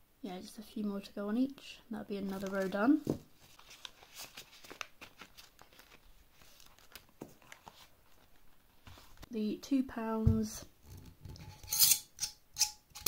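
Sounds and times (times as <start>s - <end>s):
paper rustling: 2.2s - 9.3s.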